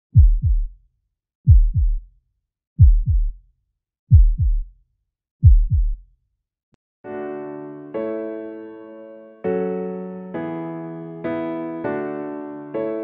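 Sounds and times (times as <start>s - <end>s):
heartbeat double thuds: 0.1s - 0.8s, 1.5s - 2.1s, 2.8s - 3.4s, 4.1s - 4.7s, 5.4s - 6.0s.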